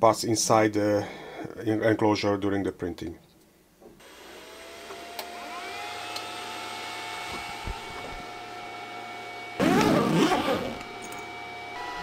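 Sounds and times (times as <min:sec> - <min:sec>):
dryer fan hum and whine: 0:05.1 - 0:12.0.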